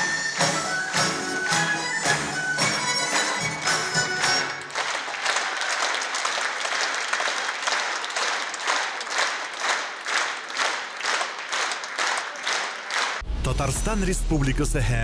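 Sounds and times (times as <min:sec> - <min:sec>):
band music: 0:00.0 - 0:04.8
audience applauding: 0:00.0 - 0:13.2
rhythmic clapping in unison: 0:00.0 - 0:13.2.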